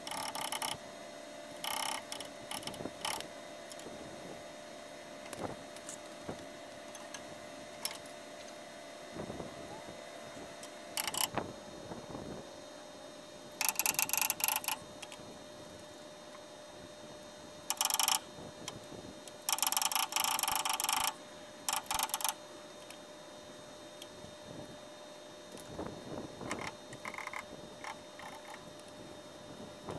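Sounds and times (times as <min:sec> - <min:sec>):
rapid mechanical clicking: 0:00.0 - 0:00.8, 0:01.5 - 0:03.9, 0:05.2 - 0:08.6, 0:10.6 - 0:11.4, 0:13.6 - 0:15.2, 0:17.7 - 0:23.0, 0:26.4 - 0:29.0.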